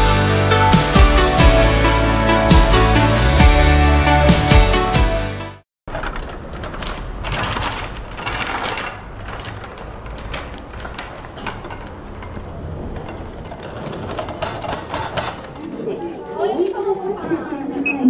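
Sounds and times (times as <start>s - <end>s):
metal luggage cart rattling: 5.9s - 16.0s
hum of a large hall: 15.4s - 18.0s.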